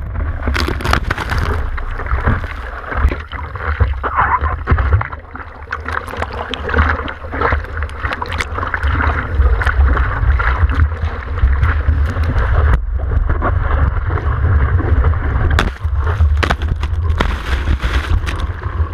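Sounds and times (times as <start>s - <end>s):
sea water rushing and splashing: 0.0s - 18.9s
water buffeting microphone rumble: 0.0s - 18.9s
sharp splashes: 15.5s - 18.7s.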